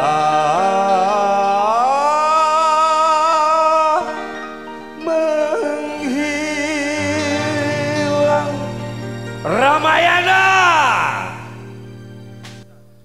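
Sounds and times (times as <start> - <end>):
melodic line with held vibrato note: 3.8 - 12.4.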